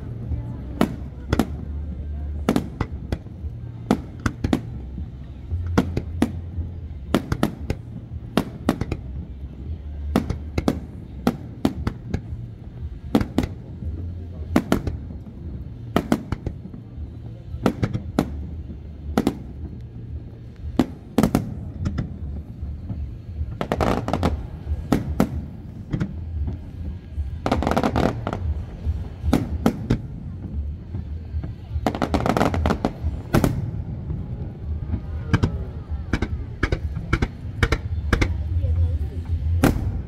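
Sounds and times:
crackling bangs: 0.0s - 38.6s, 39.2s - 40.0s
firework shells bursting: 9.9s - 38.5s.

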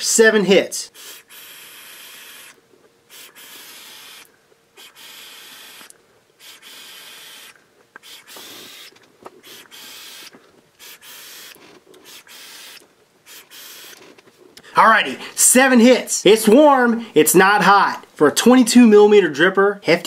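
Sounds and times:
vape draw hissing: 0.9s - 14.0s.

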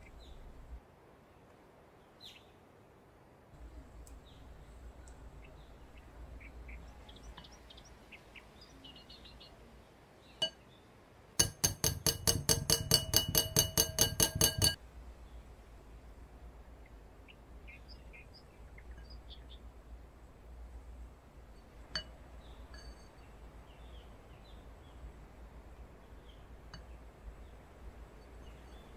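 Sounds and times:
utensil clinking on glass bowl: 11.4s - 14.8s.

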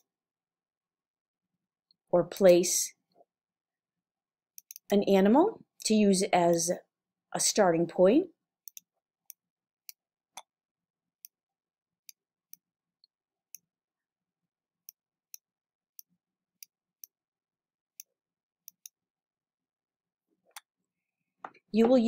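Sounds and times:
computer mouse clicking: 4.6s - 5.0s, 18.7s - 19.0s.

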